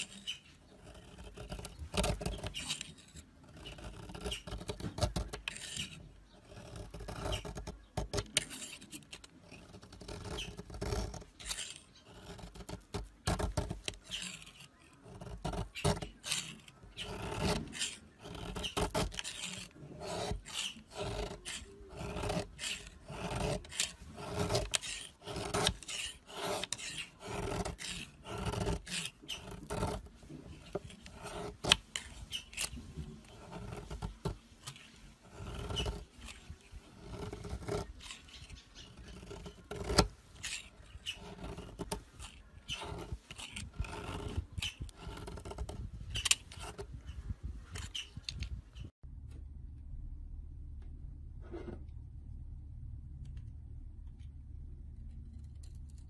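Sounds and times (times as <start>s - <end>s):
knife scraping soap: 0.0s - 48.9s.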